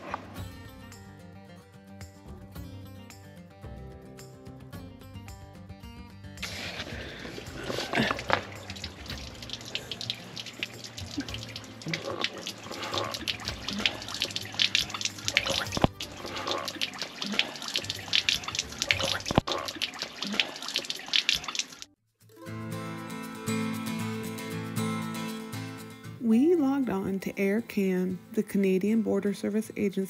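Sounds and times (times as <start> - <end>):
water pouring onto concrete: 6.4 - 21.9.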